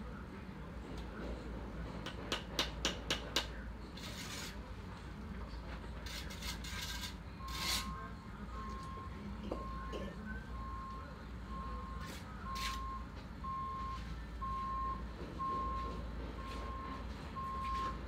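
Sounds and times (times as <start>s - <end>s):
trowel tapping brick: 2.0s - 3.6s
trowel scraping brick and mortar: 4.0s - 4.6s, 6.0s - 7.9s
reversing alarm beeping: 7.4s - 18.0s.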